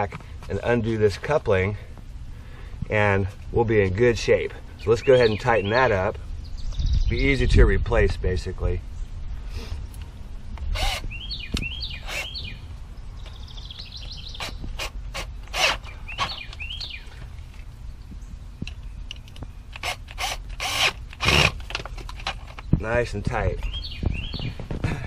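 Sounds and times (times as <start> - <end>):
birds chirping: 2.3 - 7.8, 8.7 - 21.4, 22.4 - 25.0
cordless drill driving screw: 10.7 - 11.0, 12.0 - 12.3, 14.4 - 15.9, 19.7 - 21.8.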